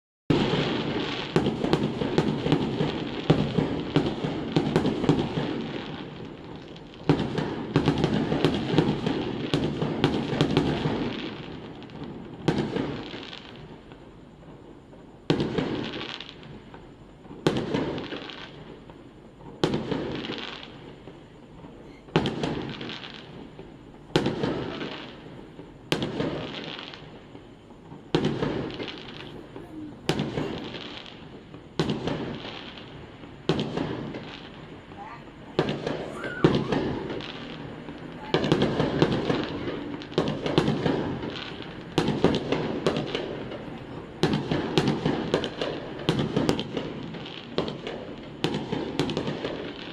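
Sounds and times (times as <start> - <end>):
echoing firework bursts: 0.3 - 49.9
fireworks bangs and crackle: 0.3 - 49.9.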